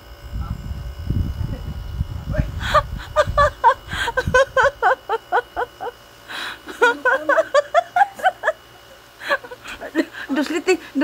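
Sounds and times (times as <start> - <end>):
person laughing: 2.5 - 6.0, 6.6 - 10.4.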